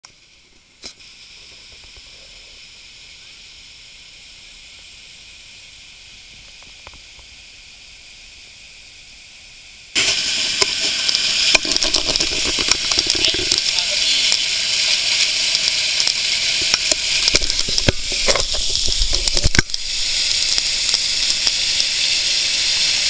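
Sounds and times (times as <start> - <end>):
water rushing over weir: 10.0 - 23.0.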